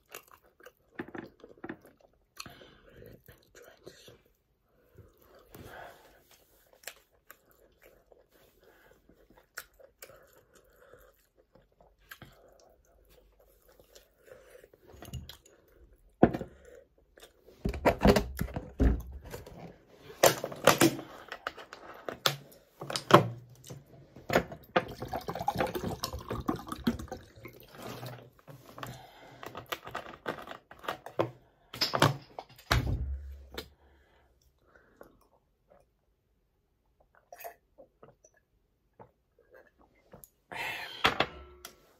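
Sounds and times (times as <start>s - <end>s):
chewing and mouth sounds: 0.0s - 4.4s, 5.0s - 17.5s
water poured into glass: 24.9s - 27.7s.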